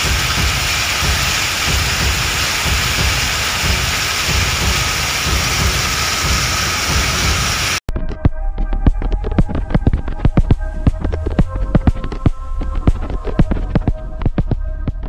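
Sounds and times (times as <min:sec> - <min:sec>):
heavy rain and hail on street: 0:00.0 - 0:07.8
low rumble: 0:00.0 - 0:15.0.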